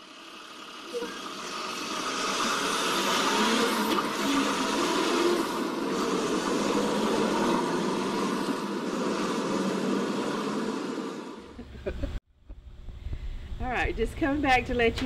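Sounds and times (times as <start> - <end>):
rushing road noise: 0.0 - 11.5.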